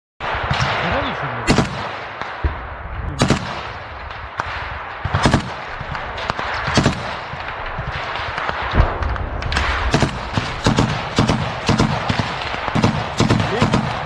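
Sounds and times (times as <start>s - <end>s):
gunshots: 0.2s - 14.0s.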